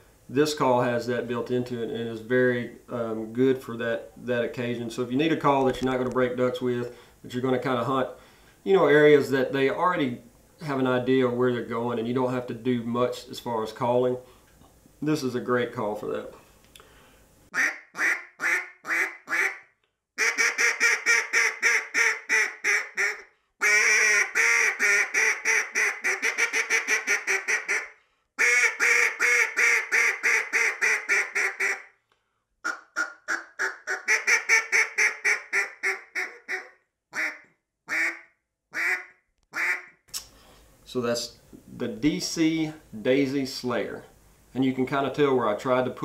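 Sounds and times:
duck call quacks: 17.5 - 31.9, 32.6 - 39.9.

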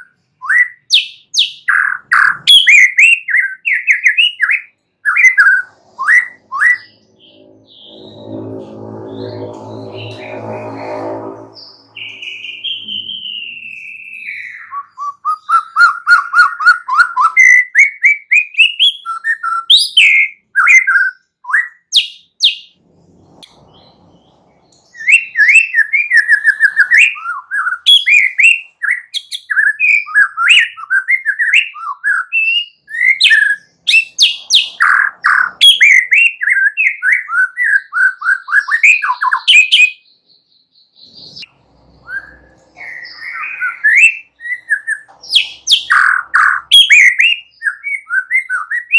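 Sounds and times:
bird singing whistles and chatter: 0.0 - 8.5, 24.8 - 40.2, 40.9 - 48.9.

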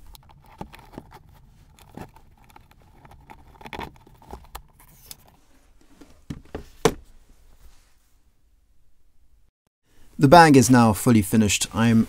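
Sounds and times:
strap hardware clicks and rubs: 0.0 - 6.8.

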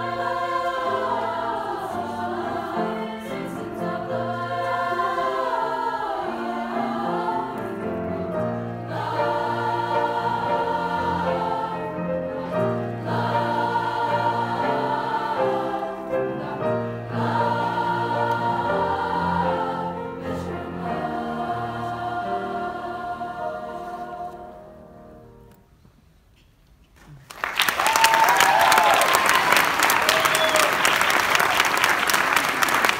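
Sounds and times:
girls' choir singing: 0.0 - 25.4
piano accompaniment: 0.0 - 25.6.

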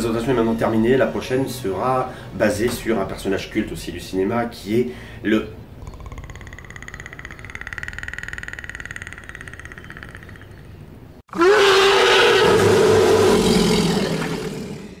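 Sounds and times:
harsh roar sound effect: 11.3 - 15.0.

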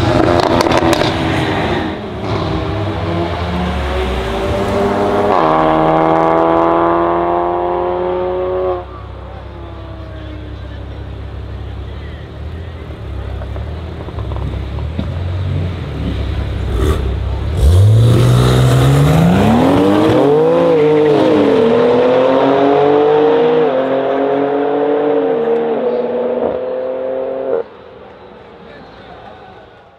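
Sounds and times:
car engine revving and accelerating: 0.0 - 9.0, 13.4 - 27.8.

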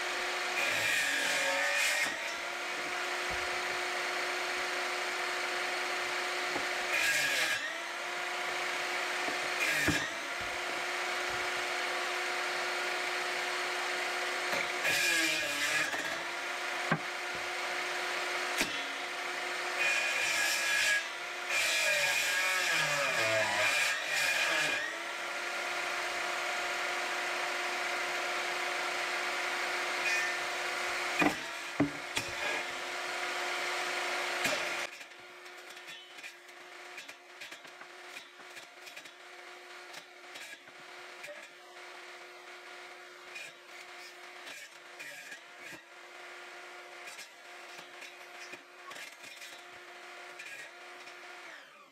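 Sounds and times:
table saw motor running: 0.0 - 35.1.

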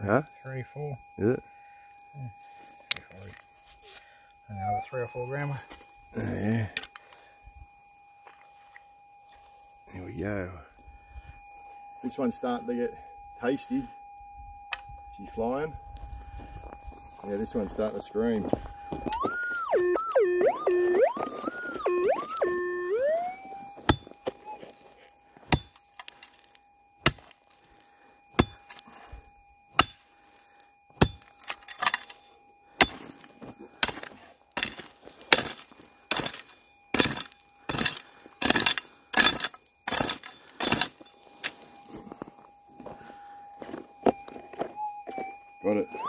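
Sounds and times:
metal detector high tone: 0.0 - 46.0
pick striking stony ground: 23.8 - 24.8, 25.4 - 27.6, 28.4 - 42.0.

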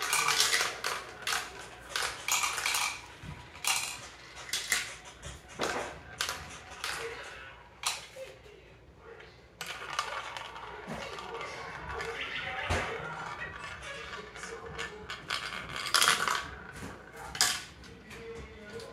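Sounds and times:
marbles rattling down plastic run: 0.0 - 4.8, 14.9 - 16.5.

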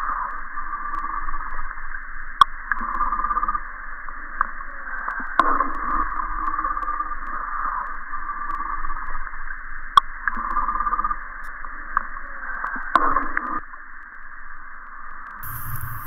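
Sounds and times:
tinny radio-like sound: 15.4 - 16.0.

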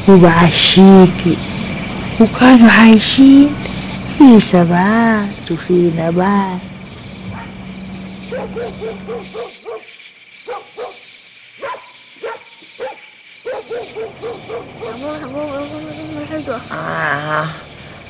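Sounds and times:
low steady hum: 0.0 - 9.6
crickets chirping: 0.0 - 18.0
dog barking: 7.3 - 7.6, 8.3 - 15.1.

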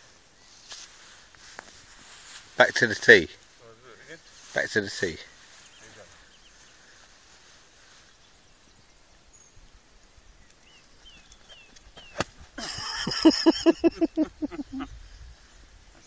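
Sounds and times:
faint bird chirps: 5.3 - 12.4
burst of laughter: 12.6 - 14.9.

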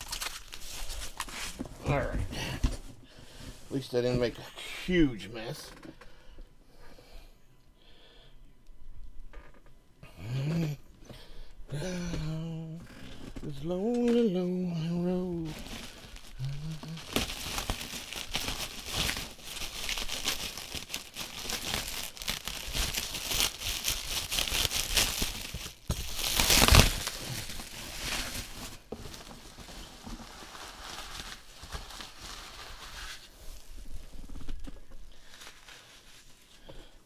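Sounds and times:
bubble wrap crinkling: 0.0 - 2.2, 12.3 - 36.9.

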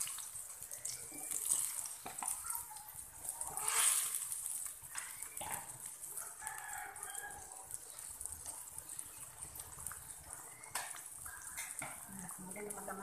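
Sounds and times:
sauce simmering hiss: 0.0 - 13.0
rooster crowing: 6.2 - 7.7.

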